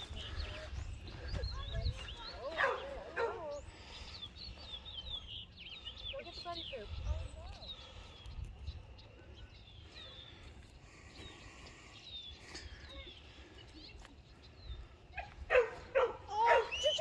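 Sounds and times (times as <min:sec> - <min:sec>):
wind rumble on microphone: 0:00.0 - 0:05.6, 0:06.6 - 0:09.6
small birds calling: 0:00.0 - 0:17.0.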